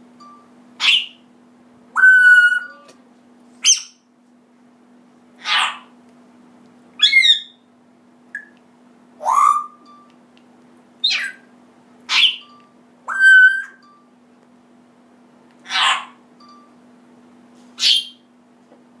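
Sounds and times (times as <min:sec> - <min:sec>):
parrot squawking: 0:00.8 - 0:01.2, 0:02.0 - 0:02.9, 0:03.6 - 0:04.0, 0:05.4 - 0:05.9, 0:07.0 - 0:07.6, 0:09.2 - 0:09.8, 0:11.0 - 0:11.5, 0:12.1 - 0:12.5, 0:13.1 - 0:13.8, 0:15.6 - 0:16.2, 0:17.8 - 0:18.2
parrot whistling: 0:00.8 - 0:01.2, 0:02.0 - 0:02.9, 0:03.6 - 0:04.0, 0:07.0 - 0:07.6, 0:09.2 - 0:09.9, 0:11.0 - 0:11.5, 0:12.1 - 0:13.9, 0:17.8 - 0:18.2.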